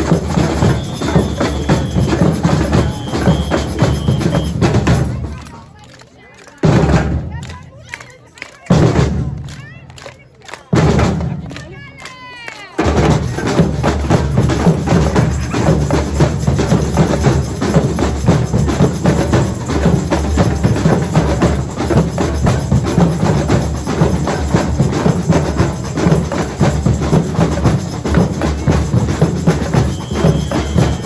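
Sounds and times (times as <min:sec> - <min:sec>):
samba music with drums: 0:00.0 - 0:05.6, 0:06.6 - 0:31.0.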